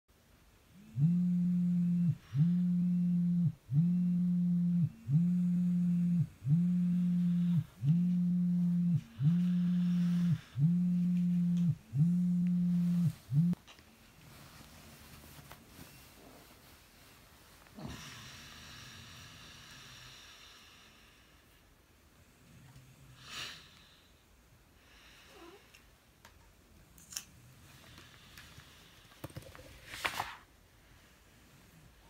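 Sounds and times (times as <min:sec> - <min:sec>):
smartphone vibrating buzz: 0:00.8 - 0:13.6.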